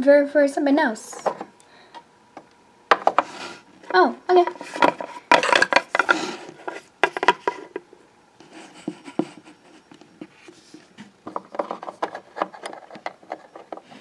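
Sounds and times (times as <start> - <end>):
plastic rubbing: 2.9 - 14.0.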